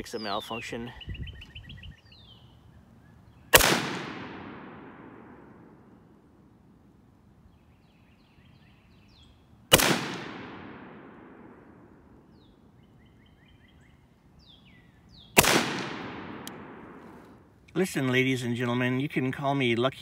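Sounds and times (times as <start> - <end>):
rifle shots with echo: 3.5 - 5.9, 9.7 - 12.2, 15.4 - 17.4.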